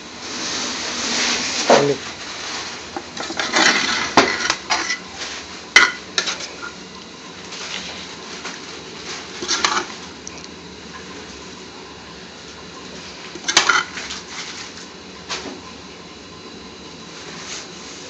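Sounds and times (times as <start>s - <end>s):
metal spoon scraping steel pot: 9.4s - 9.9s.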